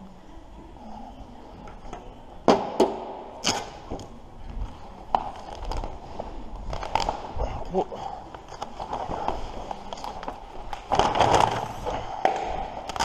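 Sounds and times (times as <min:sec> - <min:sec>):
vinyl film crackling snaps: 0:03.4 - 0:04.1, 0:06.6 - 0:07.4, 0:08.4 - 0:13.0.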